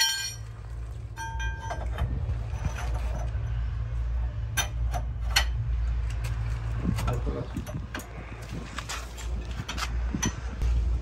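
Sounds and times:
metal tool clinks and knocks: 0.0s - 0.5s, 1.1s - 3.4s.

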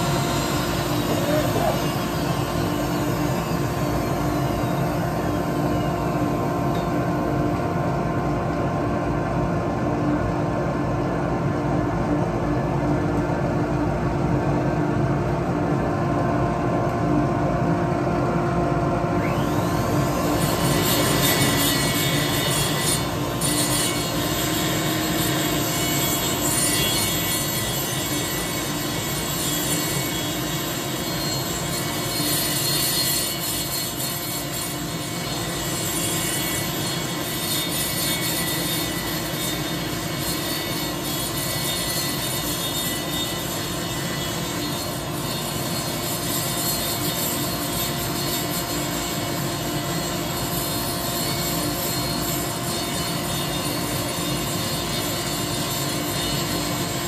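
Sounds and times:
die grinder whining: 0.0s - 6.6s, 19.2s - 57.0s.

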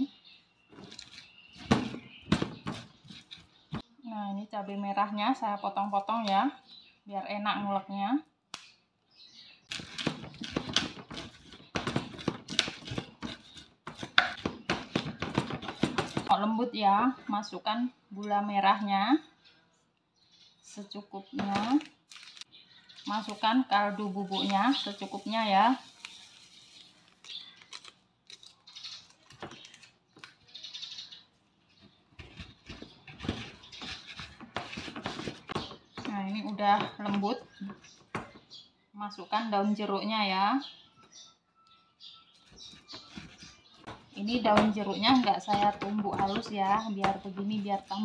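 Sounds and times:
wooden pestle pounding in mortar: 1.6s - 3.4s, 9.7s - 16.3s, 32.2s - 36.1s, 43.0s - 47.9s.

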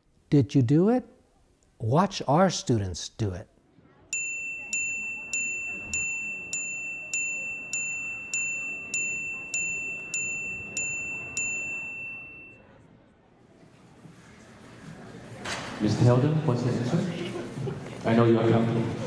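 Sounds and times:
electronic chime tone: 4.2s - 12.6s.

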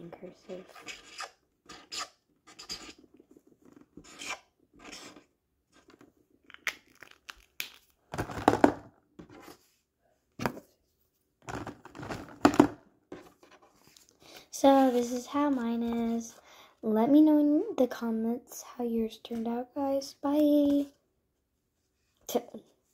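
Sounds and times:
pen scratching on paper: 0.4s - 3.1s, 4.0s - 5.3s.

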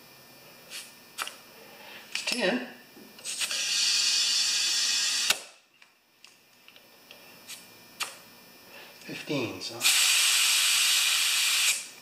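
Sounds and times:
compressed air hissing: 9.8s - 11.9s.

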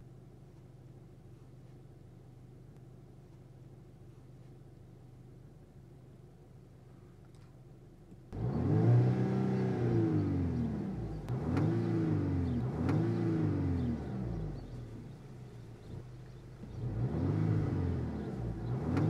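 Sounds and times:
car engine revving: 8.4s - 19.0s.

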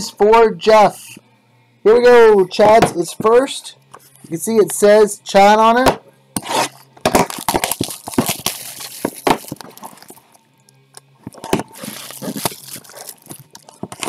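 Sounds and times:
plastic shrink wrap crinkling: 7.2s - 10.4s, 11.3s - 14.0s.

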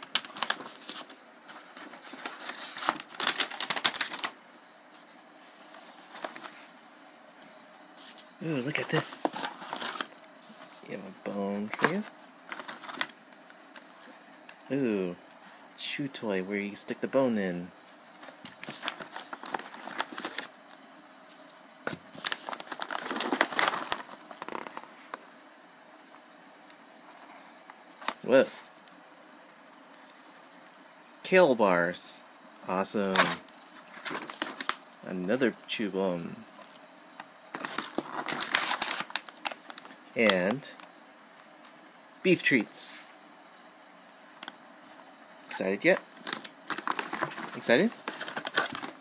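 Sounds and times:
tissue paper rustling and crinkling: 0.1s - 4.4s, 8.0s - 10.8s, 11.7s - 13.2s, 18.2s - 20.6s, 22.1s - 25.2s, 33.1s - 34.9s, 37.5s - 40.0s, 46.2s - 49.0s.

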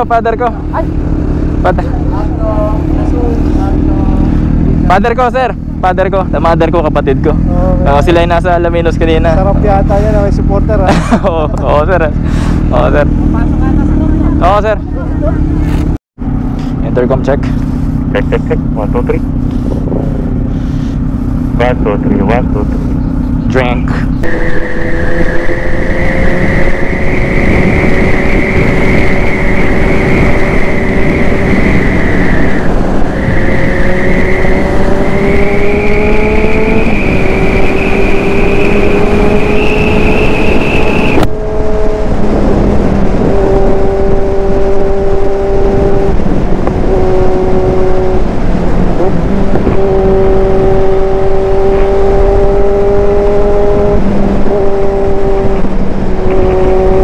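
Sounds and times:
wind noise: 0.0s - 57.0s
motorcycle engine pulling hard: 16.6s - 57.0s.

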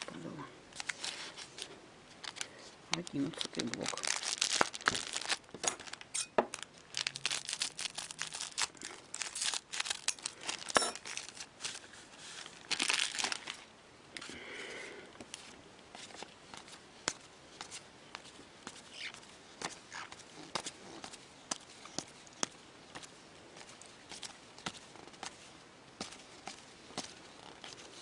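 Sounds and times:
foil wrappers tearing and crinkling: 2.2s - 13.7s.

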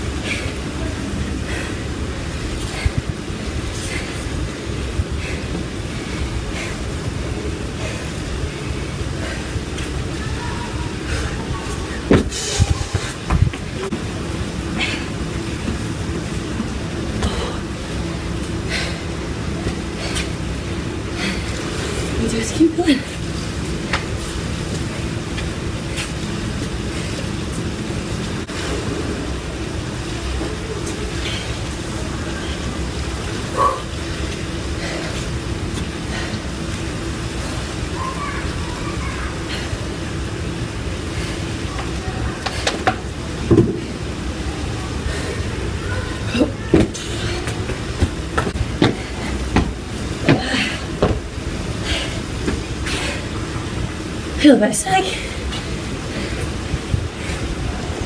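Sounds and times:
faint hum: 0.0s - 58.0s
low rumbling noise: 0.0s - 58.0s
exercise movement thuds: 11.2s - 23.0s, 41.8s - 44.0s, 46.2s - 53.3s.

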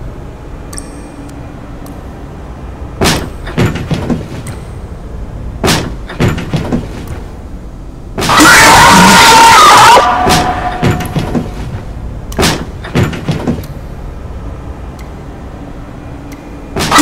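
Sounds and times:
stall doors banging open: 3.0s - 4.4s, 5.6s - 7.1s, 10.2s - 11.8s, 12.4s - 13.6s.

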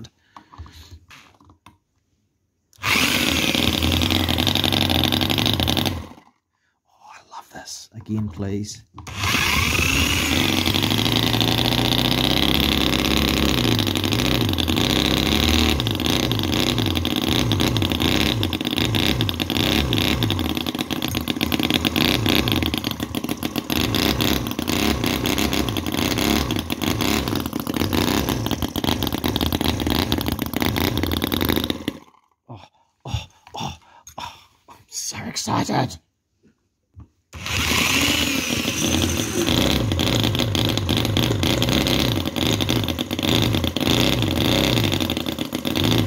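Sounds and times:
model engine running fast: 2.8s - 6.2s, 9.1s - 32.2s, 37.4s - 46.0s.

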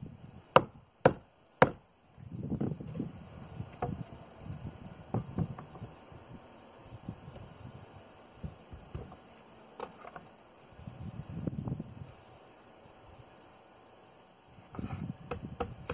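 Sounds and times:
wooden lumber knocks and thuds: 3.8s - 4.1s, 5.1s - 5.9s.

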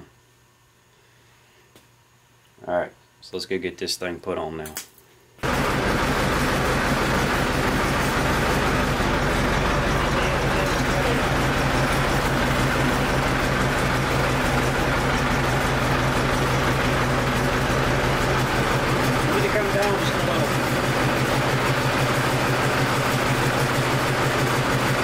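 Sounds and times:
machinery droning: 5.4s - 25.0s.

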